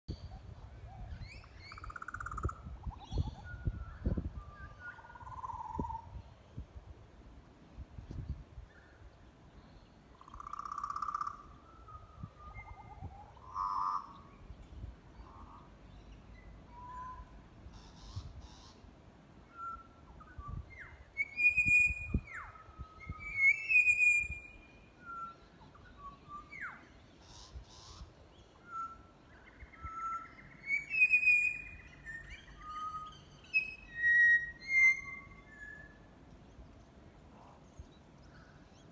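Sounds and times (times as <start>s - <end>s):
bird singing fluting whistles: 11.2s - 14.0s, 19.5s - 28.0s, 28.6s - 36.0s.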